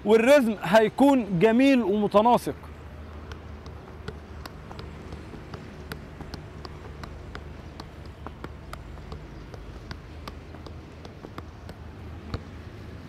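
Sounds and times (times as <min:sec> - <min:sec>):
low background rumble: 0:02.5 - 0:13.0
ball tapping on shoes: 0:02.6 - 0:13.0.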